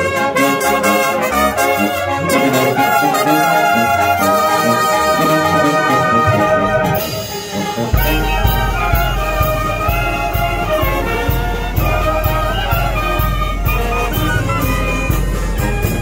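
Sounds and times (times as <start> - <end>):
brass band playing: 0.0 - 16.0
steady beat: 6.3 - 16.0.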